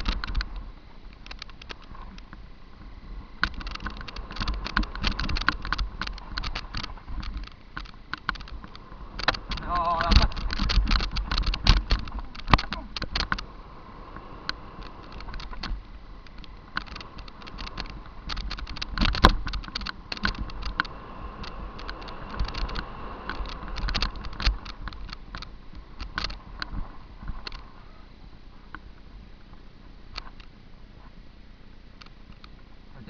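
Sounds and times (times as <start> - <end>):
low rumble of wind and tyres: 0.0 - 33.0
mountain bike knocks and rattles: 3.4 - 13.4, 15.1 - 27.6.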